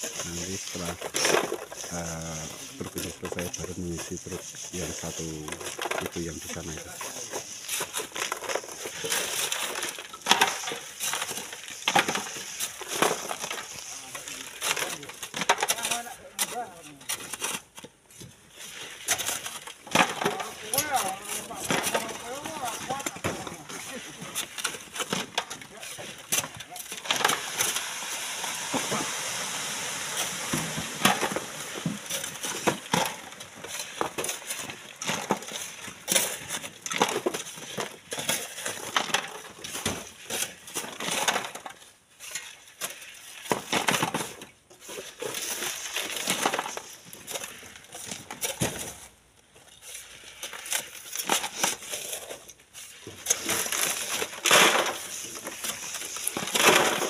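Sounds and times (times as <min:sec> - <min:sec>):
sand and stones crunching: 0:00.0 - 0:17.7.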